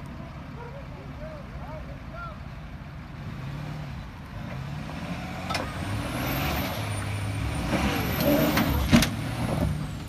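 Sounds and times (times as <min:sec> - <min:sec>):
pickup truck engine under load: 0:02.8 - 0:10.0.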